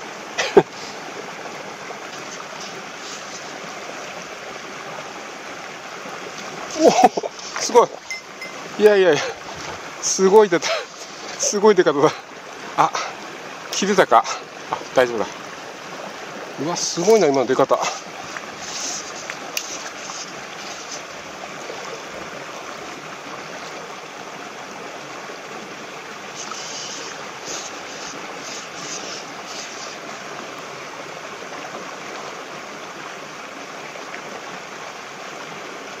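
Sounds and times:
creek water flowing: 0:00.0 - 0:36.0
short hissy splashes: 0:02.2 - 0:03.8, 0:17.7 - 0:22.0, 0:26.3 - 0:30.2.

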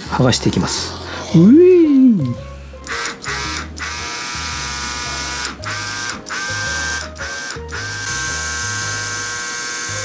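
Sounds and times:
air compressor buzzing hum: 0:02.4 - 0:10.0.

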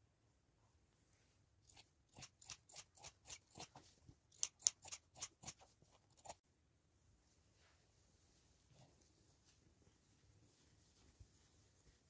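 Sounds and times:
scissors snipping cloth: 0:01.7 - 0:06.4.

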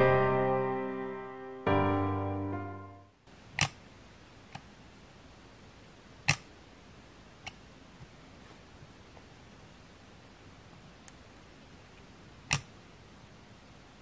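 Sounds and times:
piano music: 0:00.0 - 0:03.2.

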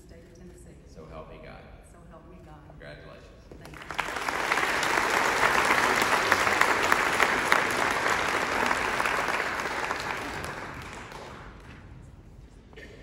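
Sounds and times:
audience applauding: 0:03.6 - 0:11.8.

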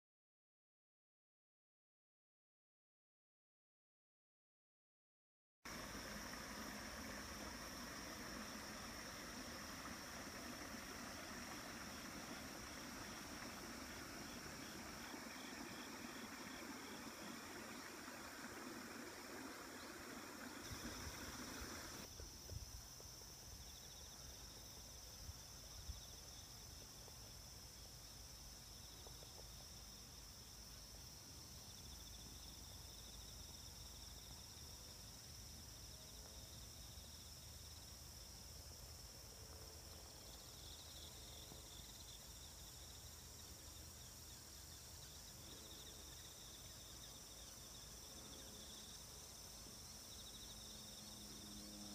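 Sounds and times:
stream trickling: 0:05.7 - 0:22.2
insects chirring: 0:05.7 - 0:51.9.

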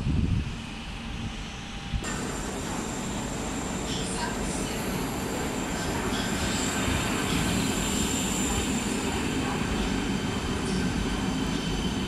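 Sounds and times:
train wheels rumbling: 0:01.4 - 0:12.0.

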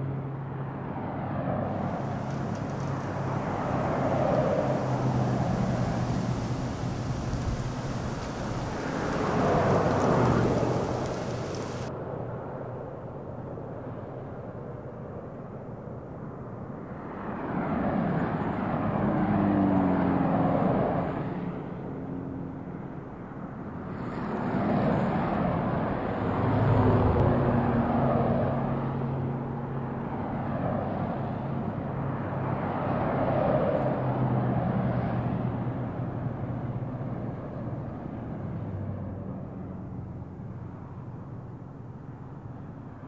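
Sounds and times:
vehicles passing by: 0:00.0 - 0:11.9
low engine hum: 0:01.7 - 0:11.9.

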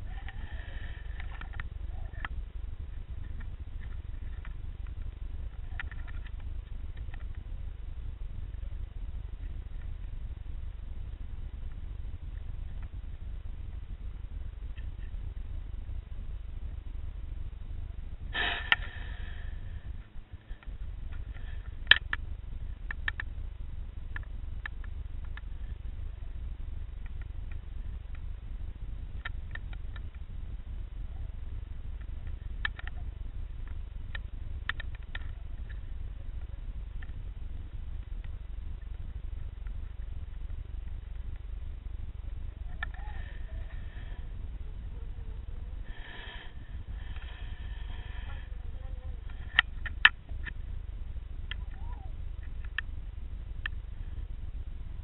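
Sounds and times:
low underwater rumble: 0:00.0 - 0:55.0
sharp underwater clicks: 0:20.6 - 0:22.3, 0:22.9 - 0:23.3.

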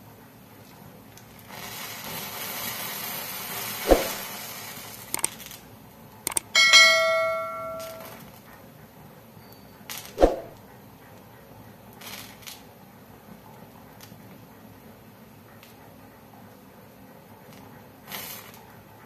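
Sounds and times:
swoosh with short thump: 0:03.9 - 0:04.2, 0:10.2 - 0:10.6
mouse clicks: 0:05.2 - 0:05.4, 0:06.3 - 0:06.5
bright bell ding: 0:06.3 - 0:08.2.

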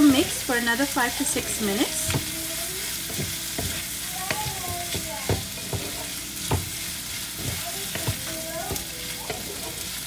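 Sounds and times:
vegetables sizzling in oil: 0:00.0 - 0:10.0
wooden spatula scraping wok: 0:00.0 - 0:10.0
spatula knocking against pan: 0:01.9 - 0:02.4, 0:03.0 - 0:09.8.

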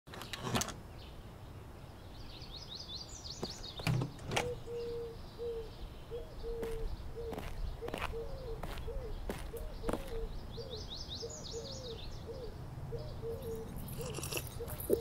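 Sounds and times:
bird chirping trill: 0:01.9 - 0:15.0
door unlatching and opening: 0:03.8 - 0:04.6
bird cooing: 0:04.3 - 0:15.0.

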